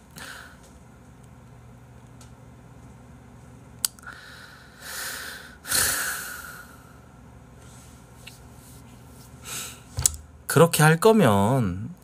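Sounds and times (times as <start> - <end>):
sharp click: 10.0 - 10.2.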